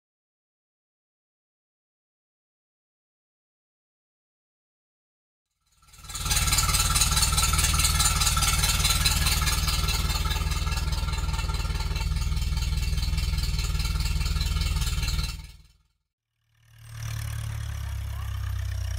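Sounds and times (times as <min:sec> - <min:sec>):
tractor engine running: 0:05.7 - 0:15.8, 0:16.6 - 0:18.9.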